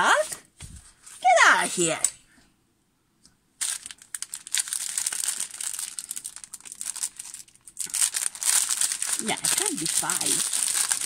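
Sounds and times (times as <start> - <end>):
plastic packaging crinkling: 3.6 - 11.0.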